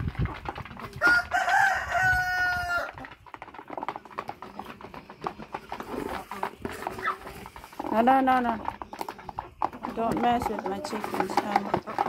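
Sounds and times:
rooster crowing: 0:01.0 - 0:03.0.

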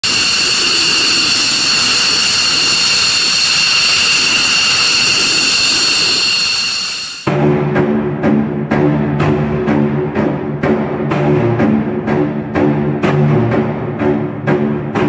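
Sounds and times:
jet engines running: 0:00.0 - 0:07.3.

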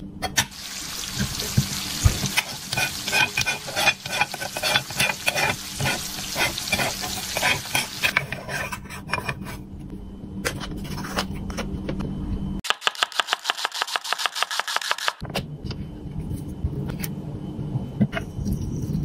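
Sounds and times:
steady low hum: 0:00.0 - 0:12.6, 0:15.2 - 0:19.0
sizzling frying: 0:00.4 - 0:08.2
spatula scraping toy pan: 0:02.3 - 0:09.6.

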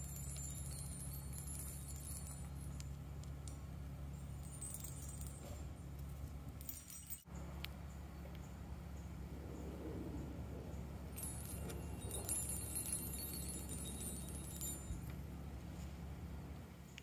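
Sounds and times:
chime balls tinkling: 0:00.0 - 0:07.3, 0:11.0 - 0:15.5
balls jingling on chains: 0:00.0 - 0:07.4, 0:10.8 - 0:15.6
steady low hum: 0:00.0 - 0:17.0.

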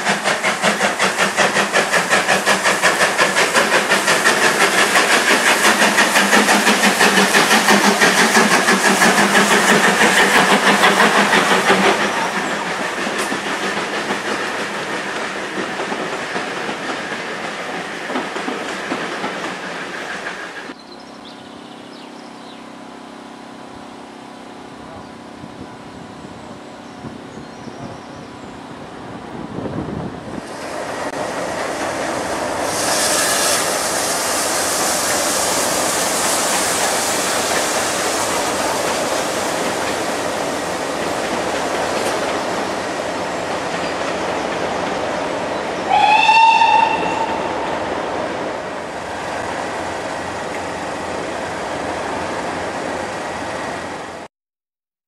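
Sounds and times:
steam hiss: 0:00.0 - 0:20.7, 0:30.3 - 0:54.3
steam train exhaust: 0:00.0 - 0:54.3
steam whistle blast: 0:32.7 - 0:33.8, 0:45.9 - 0:47.8.

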